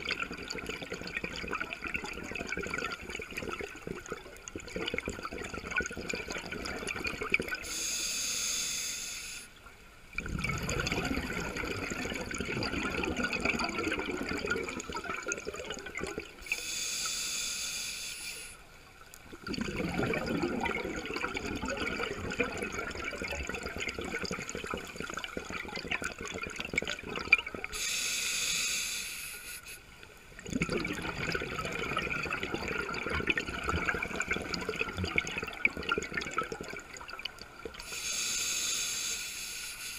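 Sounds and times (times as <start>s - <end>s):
regulator hissing inhalations: 7.6s - 9.6s, 16.4s - 18.6s, 27.7s - 29.8s, 37.8s - 39.9s
bubbling exhalations: 10.2s - 16.3s, 19.3s - 27.8s, 30.4s - 38.0s.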